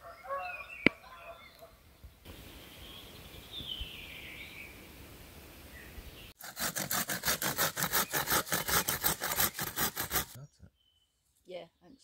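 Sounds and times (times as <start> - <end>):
faint outdoor ambience: 0.0 - 6.4
hand saw cutting wood: 6.4 - 10.4.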